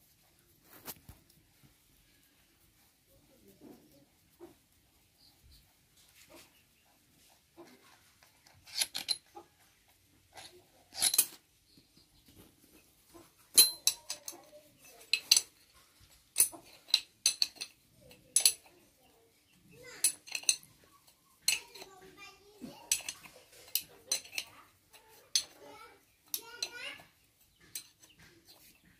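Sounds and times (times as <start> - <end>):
metal parts and tools clinking: 8.4 - 9.6, 10.2 - 11.5, 12.7 - 22.0, 22.6 - 28.9.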